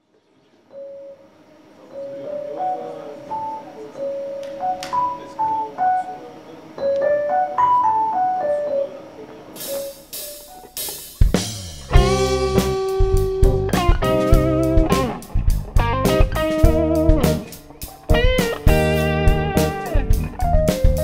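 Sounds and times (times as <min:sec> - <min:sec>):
drum kit: 0:09.6 - 0:21.0
electric guitar bent notes: 0:09.6 - 0:21.0
bass guitar: 0:11.2 - 0:21.0.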